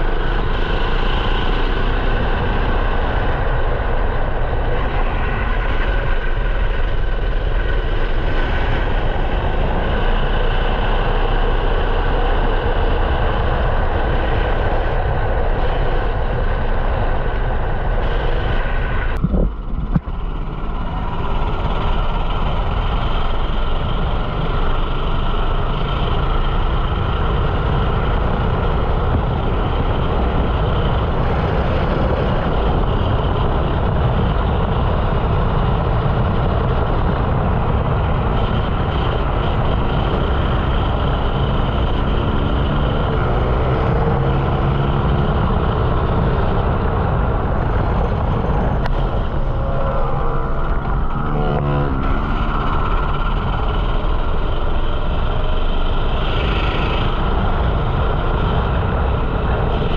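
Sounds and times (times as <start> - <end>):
kart engine revving: 19.4 - 59.9.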